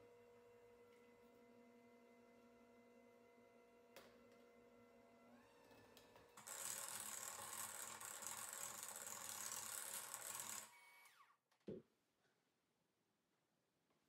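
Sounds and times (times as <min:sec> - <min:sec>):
electric hand mixer running: 0:05.2 - 0:11.3.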